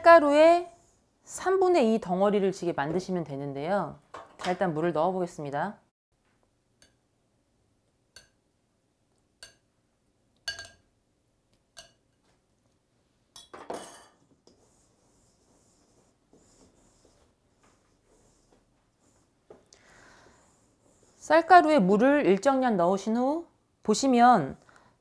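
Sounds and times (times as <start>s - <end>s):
metal spoon clinking glass bowl: 8.1s - 8.4s, 9.4s - 9.7s, 10.4s - 10.9s, 11.7s - 12.2s, 13.4s - 14.2s
spoon clatter: 10.5s - 10.8s, 11.7s - 12.0s.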